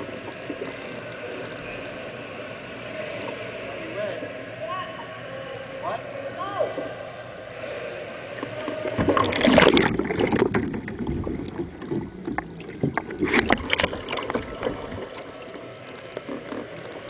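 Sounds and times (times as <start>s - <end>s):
water splashing around a kayak: 6.6s - 17.0s.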